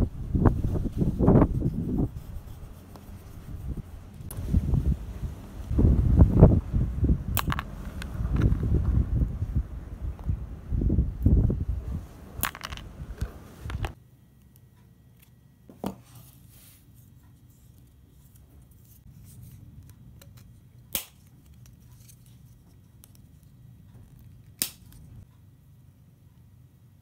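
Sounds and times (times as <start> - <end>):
hands rustling near microphone: 0.1 - 5.7.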